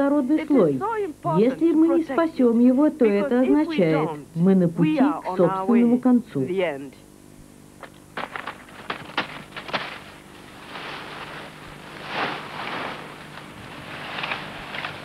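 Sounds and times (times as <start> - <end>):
dry stalks snapping: 7.8 - 15.0
leaves rustling: 7.9 - 15.0.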